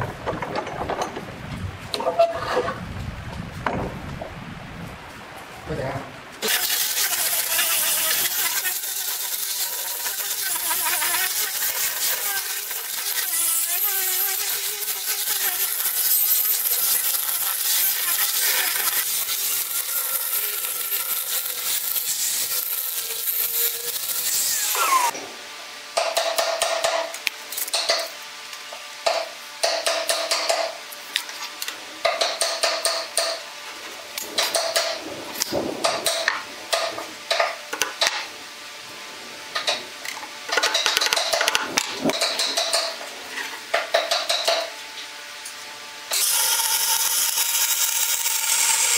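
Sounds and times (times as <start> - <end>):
angle grinder sanding wood: 6.4 - 25.2, 46.1 - 48.9.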